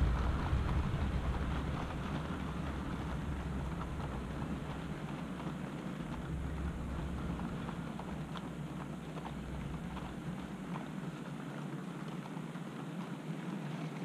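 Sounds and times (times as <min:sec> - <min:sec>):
low rumble: 0:00.0 - 0:11.5.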